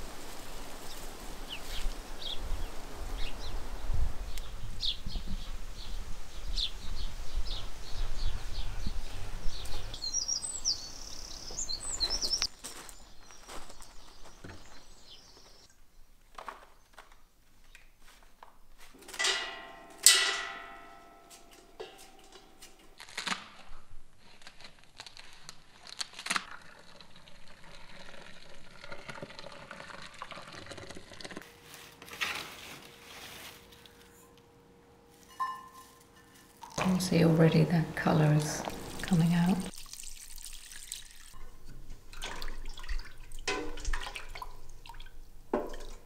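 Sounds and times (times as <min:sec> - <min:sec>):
small birds chirping: 0:00.9 - 0:15.7, 0:36.8 - 0:39.7
leaves handled in metal pot: 0:18.9 - 0:23.6, 0:35.1 - 0:39.7
metallic clang: 0:19.0 - 0:22.9, 0:35.3 - 0:37.0, 0:43.5 - 0:43.9
water pouring from kettle: 0:26.5 - 0:31.4, 0:38.4 - 0:41.4, 0:42.1 - 0:46.0.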